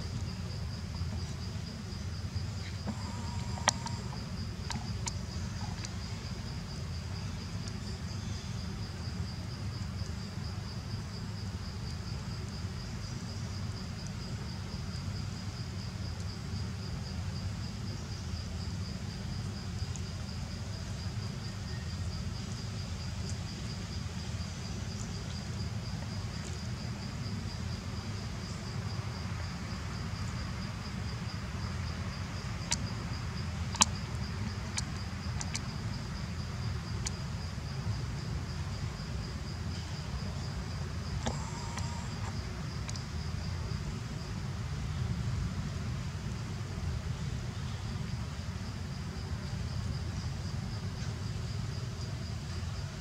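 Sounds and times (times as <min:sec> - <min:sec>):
low steady rumble: 0:00.0 - 0:53.0
insect high-pitched trill: 0:02.5 - 0:06.6, 0:41.0 - 0:43.0
sharp clicks: 0:33.7 - 0:34.0.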